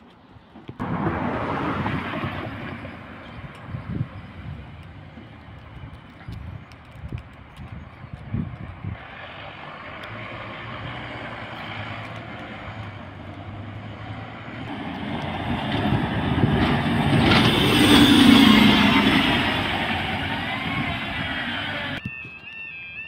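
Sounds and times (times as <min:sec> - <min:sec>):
bus passing close by: 0:00.8 - 0:05.4, 0:08.8 - 0:22.0.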